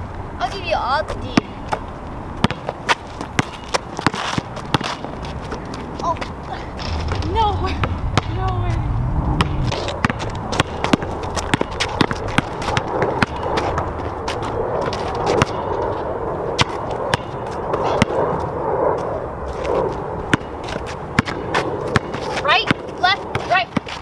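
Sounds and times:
basketball bouncing: 0:02.4 - 0:08.8, 0:09.4 - 0:15.7, 0:16.6 - 0:18.2, 0:20.3 - 0:24.0
steady rushing background: 0:04.5 - 0:23.0.

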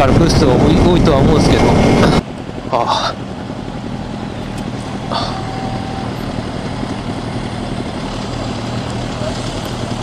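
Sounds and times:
motorcycle engines idling: 0:00.0 - 0:10.0
faint tone: 0:05.1 - 0:06.3.

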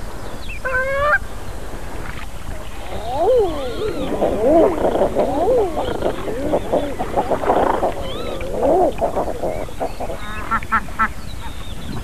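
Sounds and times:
geese honking: 0:02.8 - 0:10.7.

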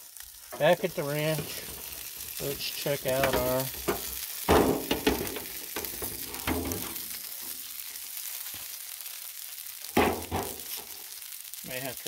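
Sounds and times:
meat sizzling on griddle: 0:00.0 - 0:12.0
foil pan clattering and crinkling: 0:03.0 - 0:07.0.

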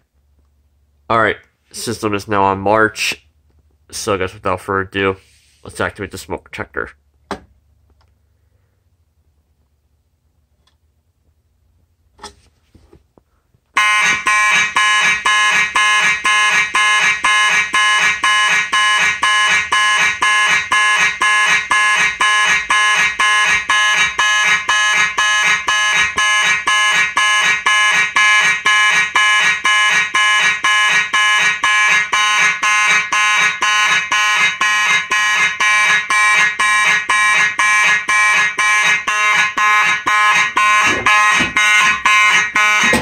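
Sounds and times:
fire alarm horn blasts: 0:13.8 - 0:43.0.

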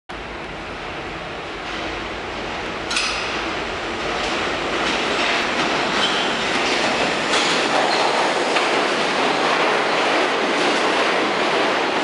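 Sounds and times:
subway train rumble: 0:00.1 - 0:12.0
wheels clacking over rail joints: 0:02.8 - 0:12.0.

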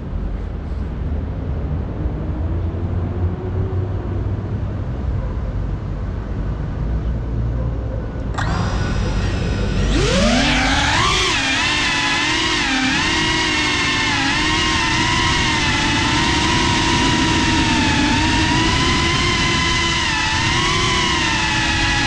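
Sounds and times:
high motor whine: 0:08.1 - 0:22.0
quadcopter motors buzzing: 0:08.2 - 0:22.0.

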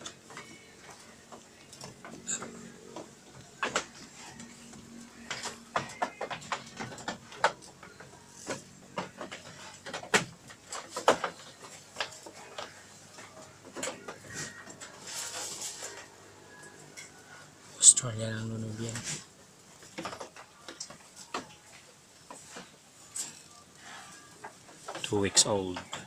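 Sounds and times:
goats feeding clicks and knocks: 0:00.0 - 0:26.0
leaves rustling: 0:11.4 - 0:17.0.

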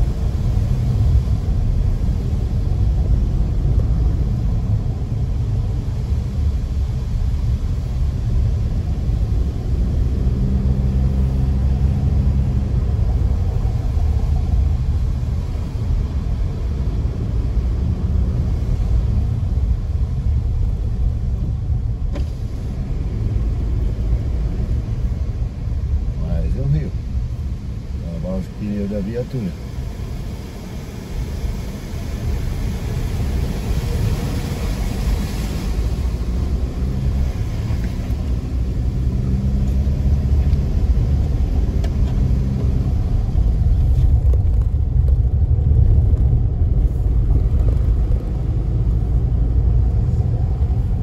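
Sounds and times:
car engine and road rumble: 0:00.0 - 0:51.0.

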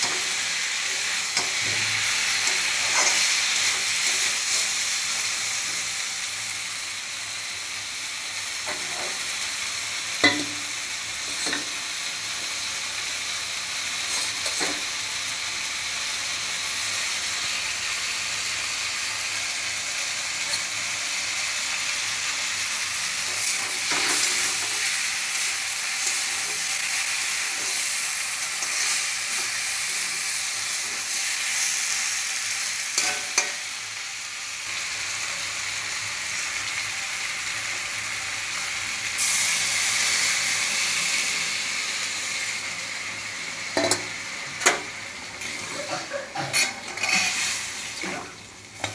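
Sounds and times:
spatula scraping pan: 0:00.0 - 0:04.8, 0:45.4 - 0:48.2
food sizzling in oil: 0:00.0 - 0:48.9.

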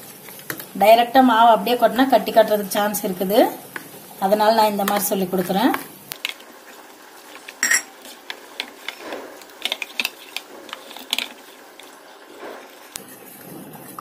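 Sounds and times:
metal spoon clinking on bowl: 0:07.6 - 0:07.9.

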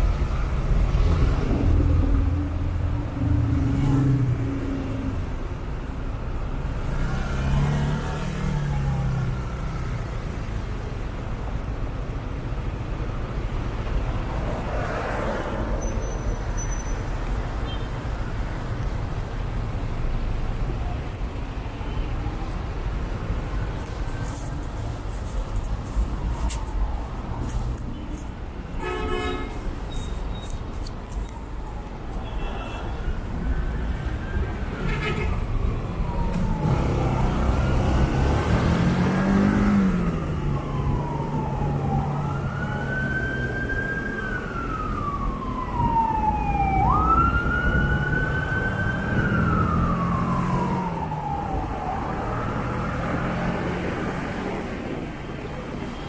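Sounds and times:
traffic engines running: 0:00.0 - 0:56.0
emergency siren wailing: 0:31.2 - 0:54.7.

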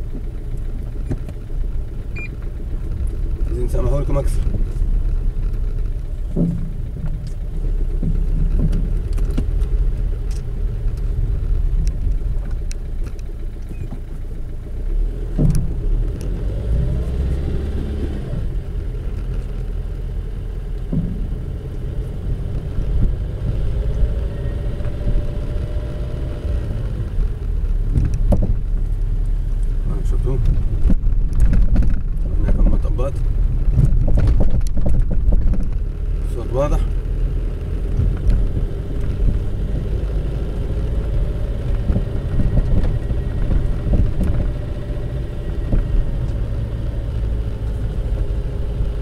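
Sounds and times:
road and tyre rumble: 0:00.0 - 0:49.0
sharp knocks from car rear: 0:06.2 - 0:07.2, 0:07.9 - 0:09.6, 0:15.3 - 0:16.0, 0:20.8 - 0:21.6.

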